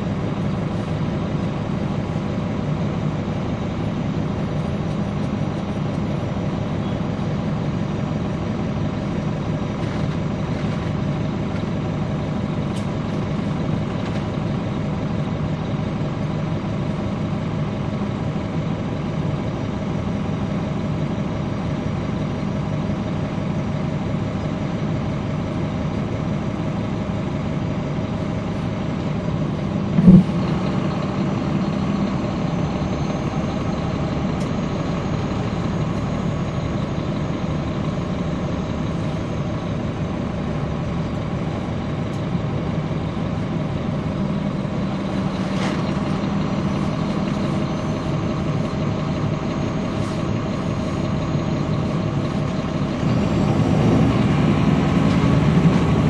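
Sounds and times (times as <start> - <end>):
bus diesel engine drone: 0.0 - 56.0.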